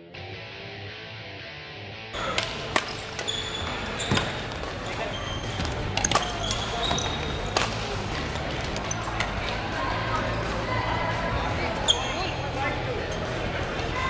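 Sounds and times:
rackets striking shuttlecocks: 2.2s - 4.8s, 5.5s - 9.6s
shoes squeaking on court: 2.2s - 9.4s, 11.8s - 12.4s
players' voices: 2.2s - 14.0s.

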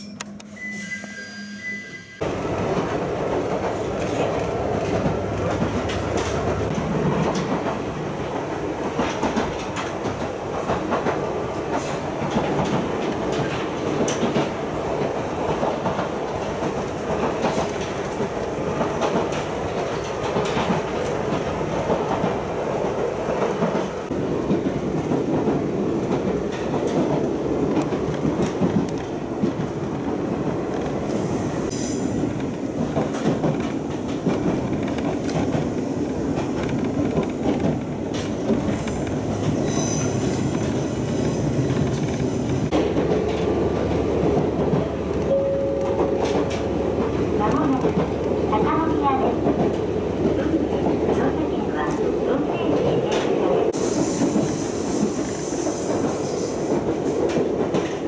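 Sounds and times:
train wheels rumbling on rails: 2.2s - 58.0s
clickety-clack over rail joints: 2.5s - 58.0s.

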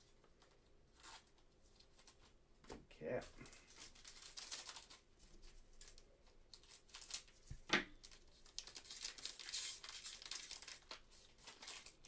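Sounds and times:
plastic wrapper tearing and crinkling: 3.4s - 5.1s, 5.8s - 12.0s.

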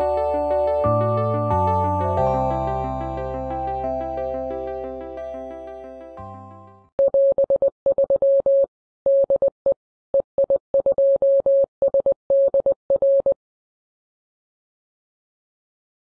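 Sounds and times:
morse code beeps: 7.0s - 9.6s, 10.2s - 13.4s.

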